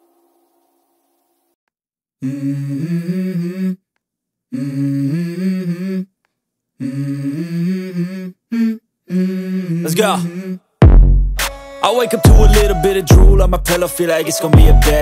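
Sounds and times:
wordless vocal melody: 2.2 - 3.9, 4.5 - 6.2, 6.8 - 10.7, 11.4 - 15.0.

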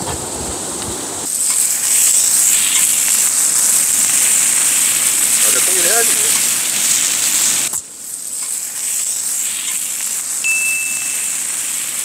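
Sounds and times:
steady hiss: 0.0 - 12.0
meat sizzling on griddle: 1.2 - 12.0
thin high whistle: 10.4 - 11.7.

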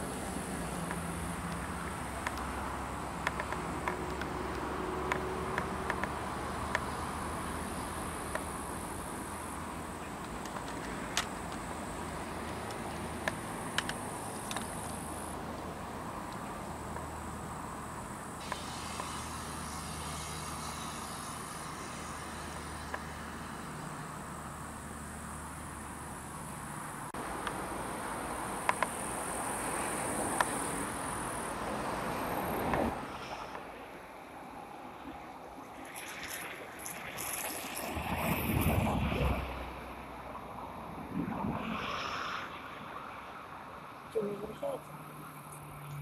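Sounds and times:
insects chirring: 0.0 - 38.8
sharp clicks: 0.8 - 2.6, 3.2 - 6.9, 10.2 - 15.7.

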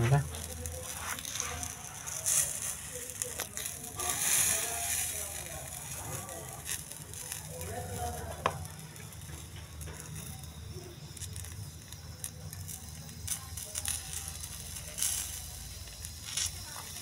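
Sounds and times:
eggs sizzling in pan: 0.0 - 17.0.

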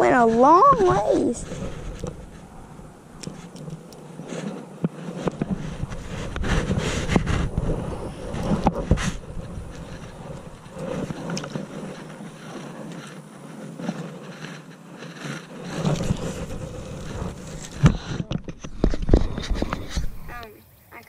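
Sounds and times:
wind buffeting microphone: 0.0 - 21.0
jacket fabric rubbing: 4.2 - 18.1.

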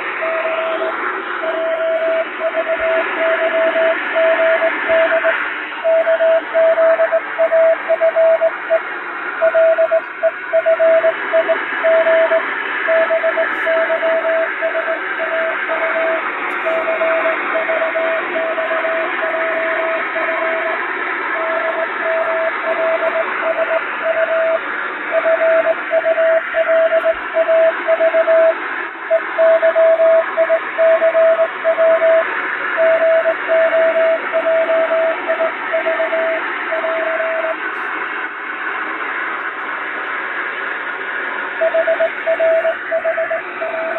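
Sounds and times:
shortwave radio static: 0.0 - 43.9
morse code beeps: 0.2 - 8.8, 9.4 - 20.8, 21.4 - 37.6, 41.6 - 43.9.

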